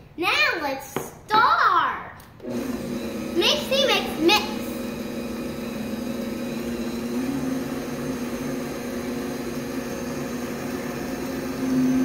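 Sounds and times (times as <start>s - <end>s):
stand mixer motor hum: 2.4s - 12.0s.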